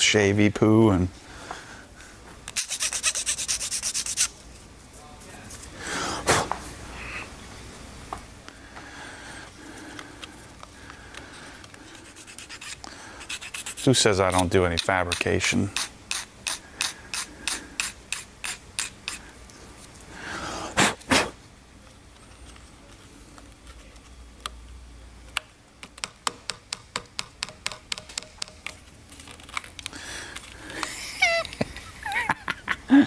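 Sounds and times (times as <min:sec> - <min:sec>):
hand scraping strokes: 0:02.5 - 0:04.4, 0:11.3 - 0:19.9.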